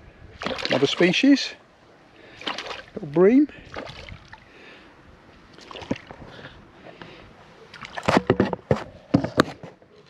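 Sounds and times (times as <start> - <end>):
fish splashing in water: 0.4 - 1.2, 2.3 - 3.0, 3.6 - 4.4, 5.5 - 6.1.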